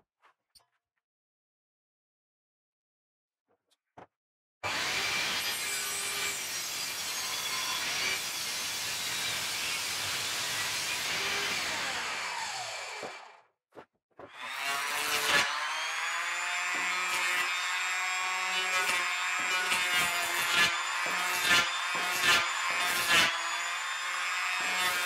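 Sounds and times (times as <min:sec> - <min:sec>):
table saw cutting wood: 0:04.6 - 0:13.4, 0:14.3 - 0:25.0.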